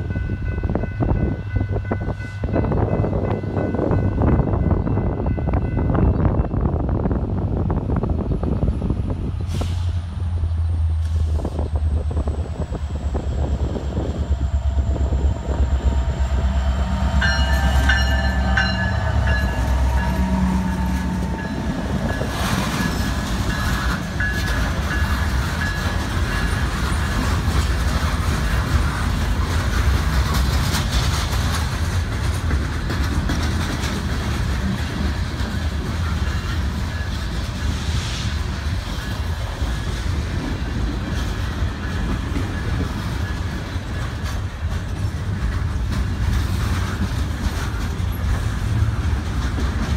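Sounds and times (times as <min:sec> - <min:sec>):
diesel locomotive engine rumbling: 0:00.0 - 0:49.9
freight cars rolling past: 0:08.4 - 0:49.9
train horn: 0:14.6 - 0:22.6.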